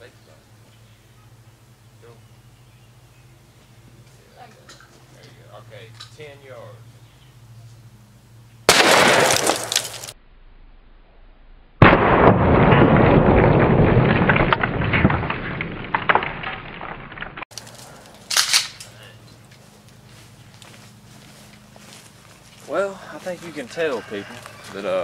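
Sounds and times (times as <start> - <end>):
shotgun blast: 8.7 - 9.9, 11.8 - 14.1
slowed-down deep gunshot boom: 11.8 - 15.7.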